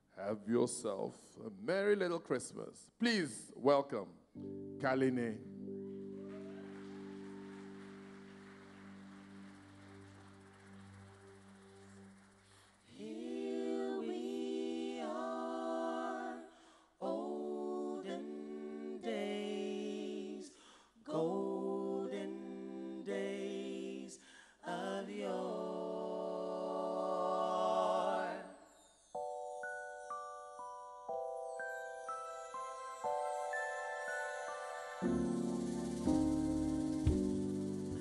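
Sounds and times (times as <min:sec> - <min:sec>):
vocal ensemble singing a cappella: 0:11.8 - 0:28.8
singers breathing: 0:12.4 - 0:13.0, 0:16.5 - 0:17.0, 0:20.5 - 0:21.0, 0:24.2 - 0:24.6.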